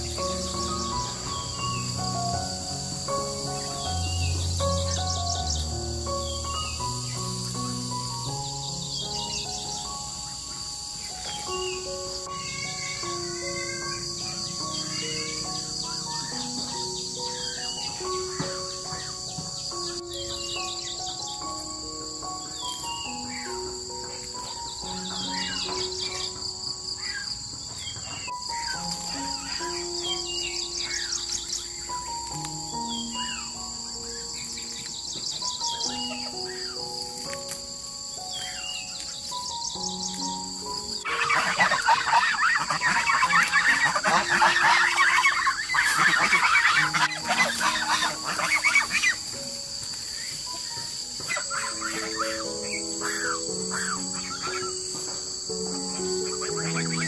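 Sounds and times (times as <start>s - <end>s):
bird chirps: 0.0s - 57.0s
high insect trill: 0.0s - 57.0s
soft instrumental music: 0.0s - 57.0s
chickens clucking: 9.3s - 21.1s, 33.2s - 37.6s, 40.3s - 57.0s.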